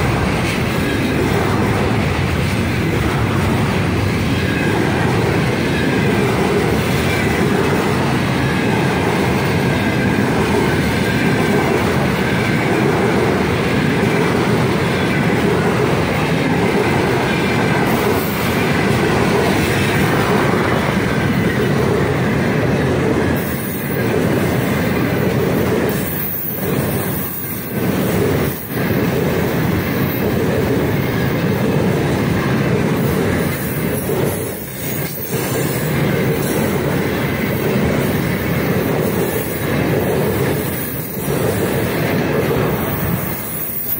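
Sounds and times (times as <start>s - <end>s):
freight train wheels on rails: 0.0s - 43.9s.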